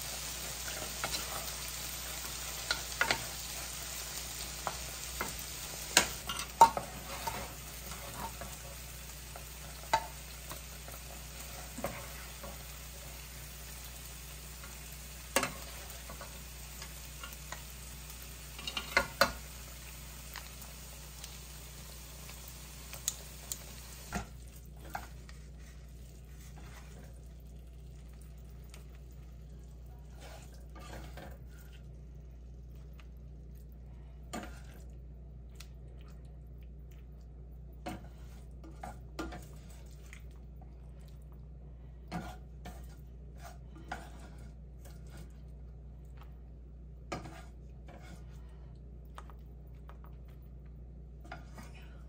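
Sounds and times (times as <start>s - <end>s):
food sizzling in a frying pan: 0.0s - 25.6s.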